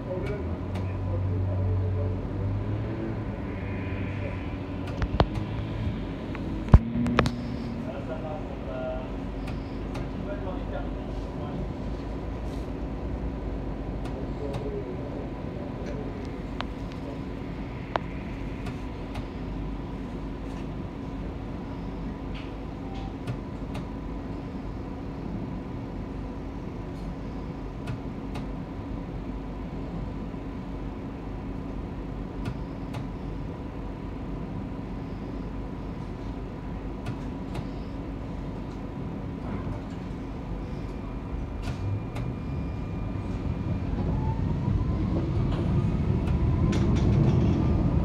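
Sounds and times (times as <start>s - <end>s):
tram wheels rumbling on rail: 0.0s - 21.6s, 38.4s - 48.0s.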